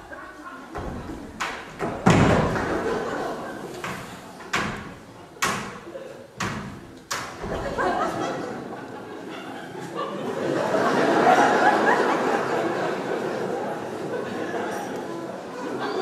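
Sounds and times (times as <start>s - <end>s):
thuds on a stage floor: 0.8s - 3.0s.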